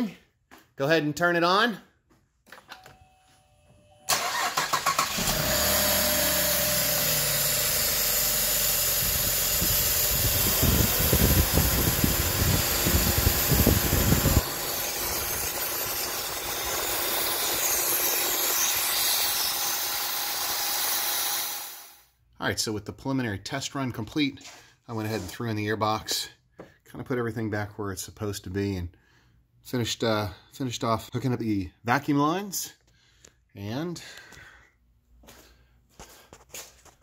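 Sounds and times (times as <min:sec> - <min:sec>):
car engine cranking and idling: 0:04.1 - 0:18.3.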